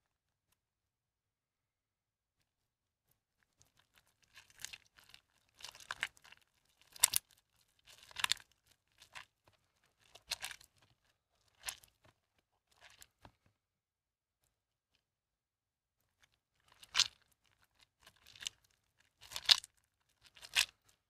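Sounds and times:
wet soap squelching crunches: 3.5 - 13.2, 16.1 - 21.0.

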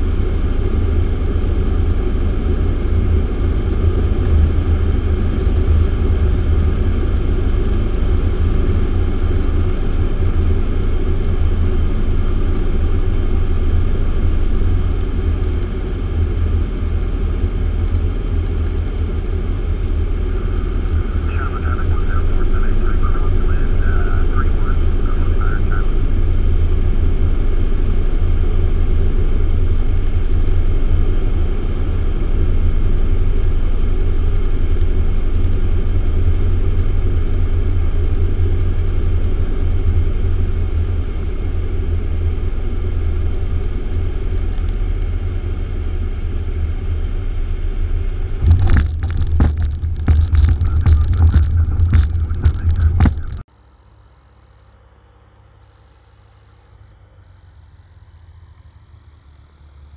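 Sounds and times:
aircraft engine and propeller droning: 0.0 - 53.5
wheels knocking and rattling: 48.4 - 53.4
faint high steady tone: 50.1 - 59.9.

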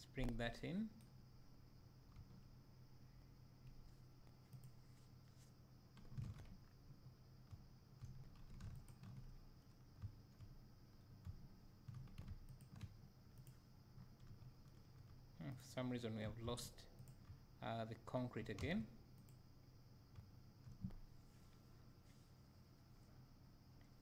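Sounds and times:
steady low hum: 0.0 - 24.0
keyboard and mouse clicks: 5.9 - 6.7, 7.5 - 10.5, 11.2 - 15.2.

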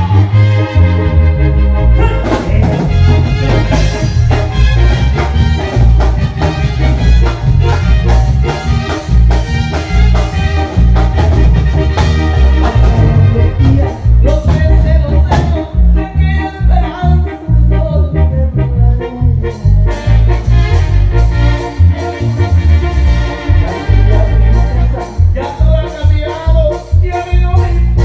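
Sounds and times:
heavy pulsing bass: 0.0 - 28.0
keyboards: 0.0 - 28.0
live band playing: 0.0 - 28.0
steady drum beat: 2.0 - 15.7.

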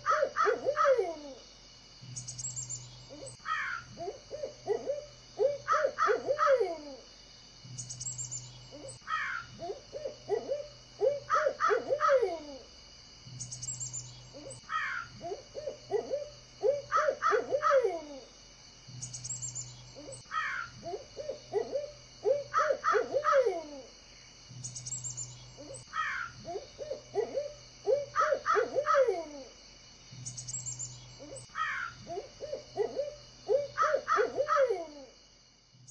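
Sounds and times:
steady high hum: 0.0 - 34.4
caw-like bird calls with trill: 3.1 - 4.8, 8.7 - 10.4, 14.4 - 17.9, 20.0 - 23.9, 25.6 - 29.1, 31.2 - 32.7.

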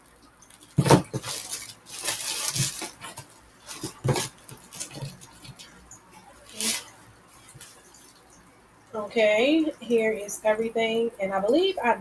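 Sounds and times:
packaging rustling and crinkling: 0.4 - 5.8, 6.4 - 8.2.

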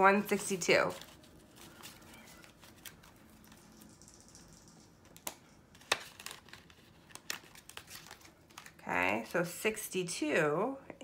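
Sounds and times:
paper rustling: 0.4 - 4.0, 5.1 - 8.8.

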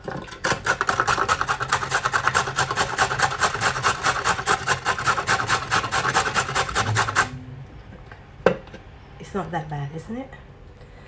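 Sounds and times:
carrot rasping on metal grater: 0.5 - 7.3.

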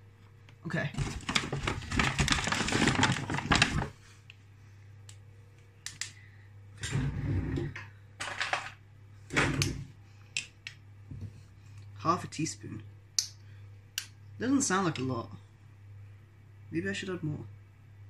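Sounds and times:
paper bag rustling: 1.0 - 4.0.

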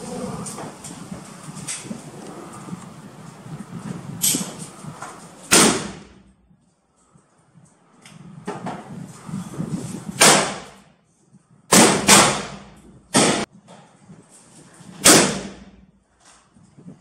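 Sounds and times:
loud gunshots with ringing tail: 5.5 - 6.2, 10.2 - 10.7, 11.7 - 13.5, 15.0 - 15.7.

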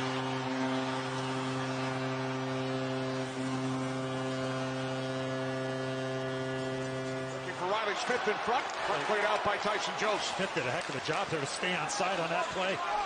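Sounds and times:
crowd cheering: 0.0 - 3.9, 7.4 - 13.0
arena goal horn: 0.0 - 10.9.

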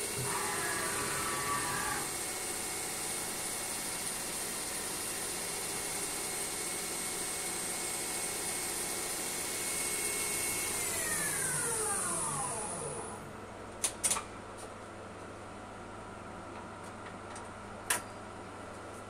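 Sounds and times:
lathe high whine: 0.0 - 13.3.

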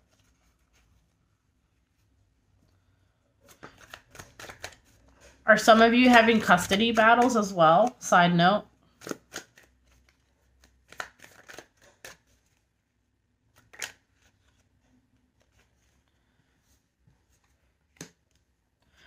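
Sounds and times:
cards being shuffled: 0.0 - 1.2, 3.4 - 8.1, 8.9 - 12.8, 13.5 - 19.0.

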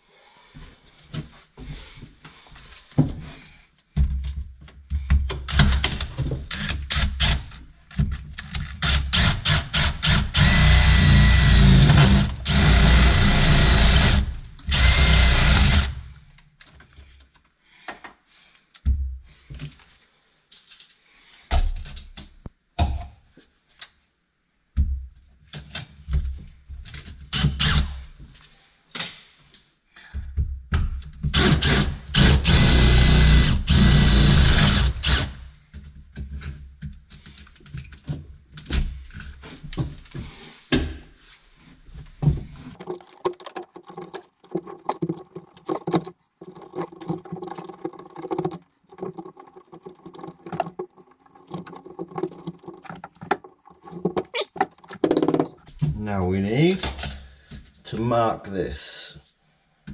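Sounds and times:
cordless drill boring: 8.8 - 16.0, 31.4 - 35.4.

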